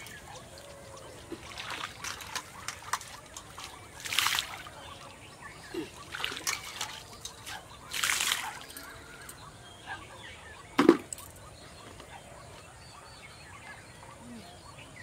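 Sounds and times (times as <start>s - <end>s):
water splashing into canal: 0.0s - 9.3s
water trickling and dripping: 0.0s - 9.4s.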